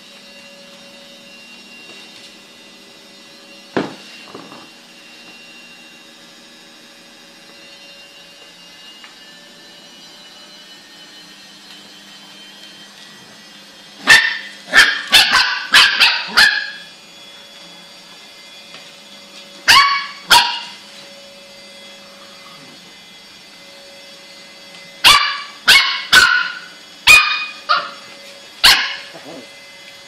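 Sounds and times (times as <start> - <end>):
puppy barking: 14.0 - 16.9, 19.7 - 20.8, 25.0 - 28.0, 28.6 - 29.5.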